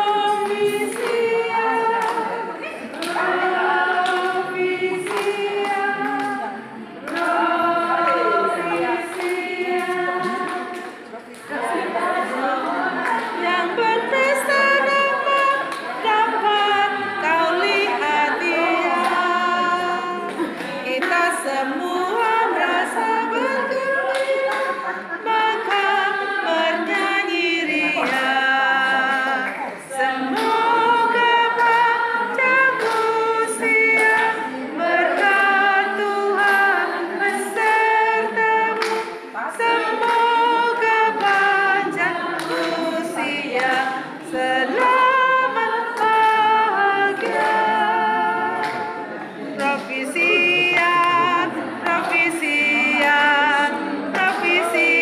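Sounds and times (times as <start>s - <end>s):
choir singing a cappella: 0.0s - 55.0s.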